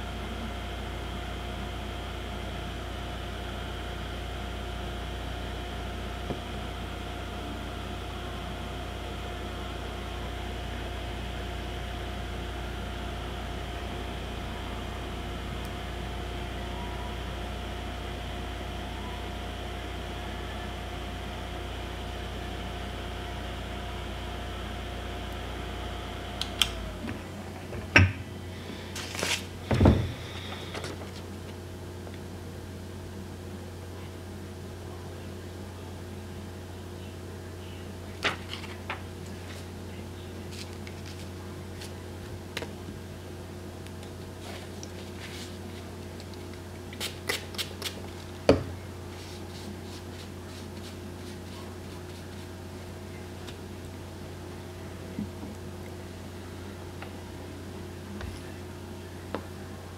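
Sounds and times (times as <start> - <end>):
heater fan humming: 0.0 - 59.9
rustling of handling: 28.7 - 31.6, 40.4 - 42.7, 44.4 - 48.3
loud knocks: 29.7 - 30.2.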